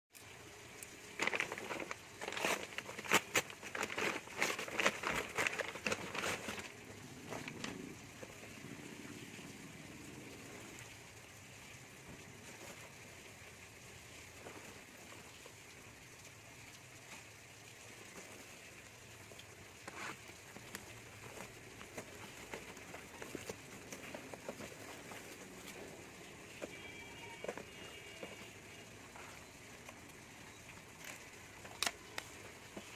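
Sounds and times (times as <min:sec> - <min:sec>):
steady low hiss: 0:00.2 - 0:32.9
plastic wrap crinkling: 0:00.8 - 0:08.6, 0:17.3 - 0:32.9
handling cardboard boxes: 0:01.2 - 0:08.4, 0:19.8 - 0:30.0, 0:31.0 - 0:32.9.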